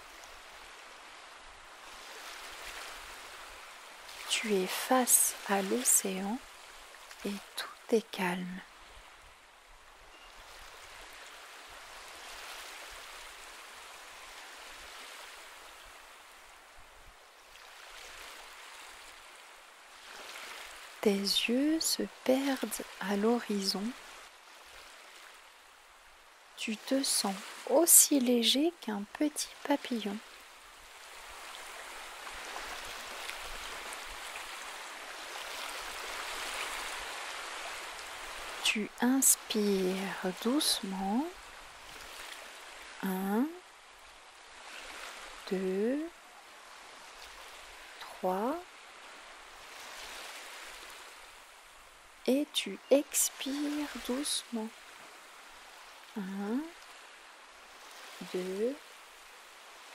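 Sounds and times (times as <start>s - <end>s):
gentle ocean waves washing: 0.0s - 59.9s.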